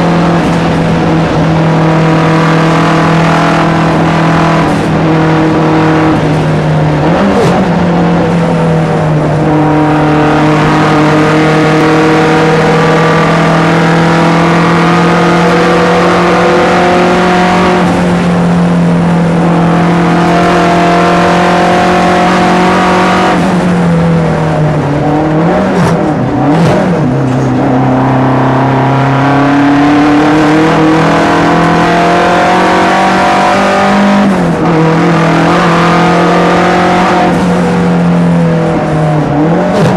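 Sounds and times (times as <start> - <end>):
race car engine at high revs: 0.0 - 39.9.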